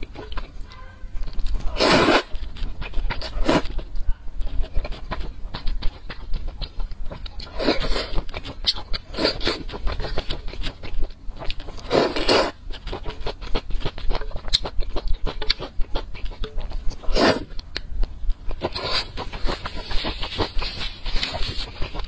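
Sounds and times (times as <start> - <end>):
wet chewing: 0.0 - 22.0
slurping noodles: 1.7 - 2.3, 11.8 - 13.0, 17.1 - 17.5.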